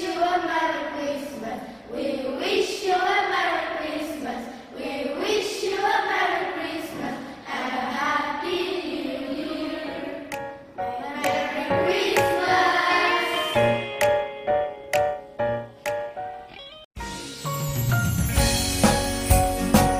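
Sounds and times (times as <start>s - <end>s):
children singing in chorus: 0.0s - 10.4s, 11.0s - 13.6s.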